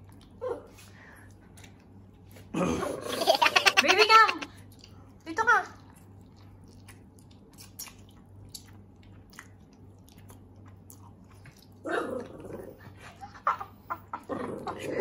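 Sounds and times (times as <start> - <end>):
person chewing noodles: 5.8 - 12.6.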